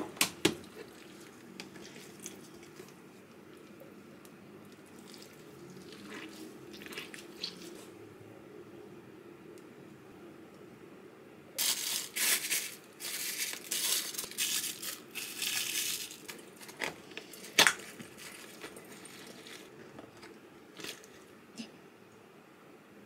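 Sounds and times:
crinkling rustling: 11.6 - 21.3.

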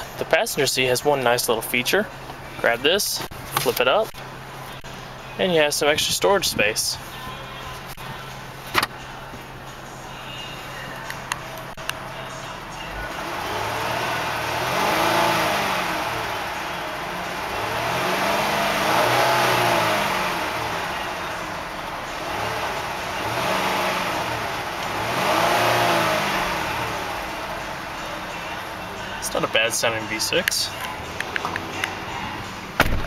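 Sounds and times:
car engine revving: 7.2 - 33.0.

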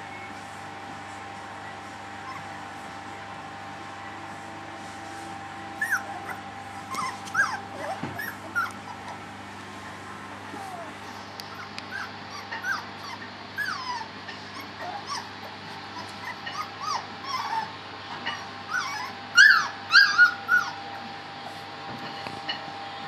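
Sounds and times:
puppies whimpering: 2.2 - 2.6, 5.8 - 9.4, 10.5 - 21.6
puppies yelping: 2.2 - 2.6, 5.8 - 9.4, 10.5 - 21.2.

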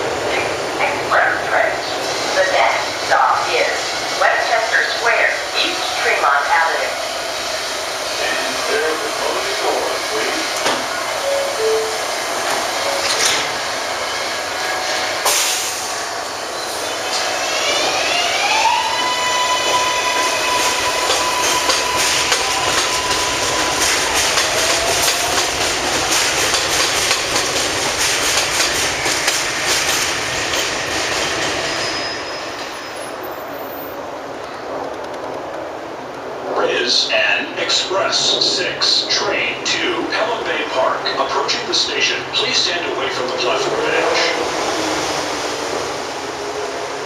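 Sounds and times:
subway train motors whining: 0.0 - 47.0
train wheels clicking over rail joints: 21.0 - 31.6.

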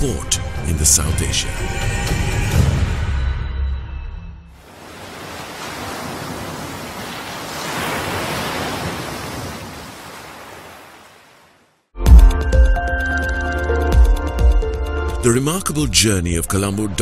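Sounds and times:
ocean wave surf rushing: 4.6 - 11.8.

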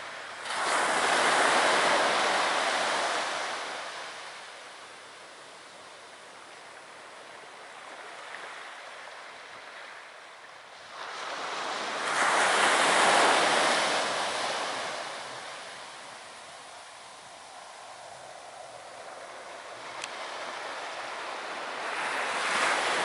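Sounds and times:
wave breaking on shore: 0.0 - 4.5, 10.8 - 23.0
surf washing on beach: 0.0 - 23.0.

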